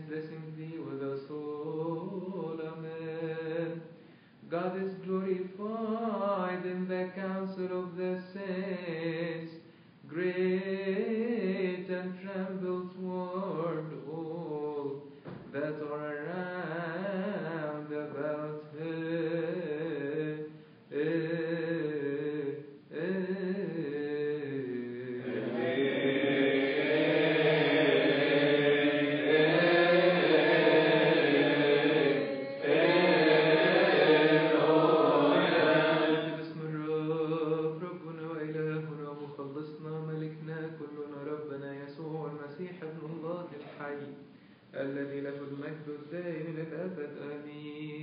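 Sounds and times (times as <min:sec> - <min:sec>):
man chanting a hymn: 0:00.0 - 0:48.0.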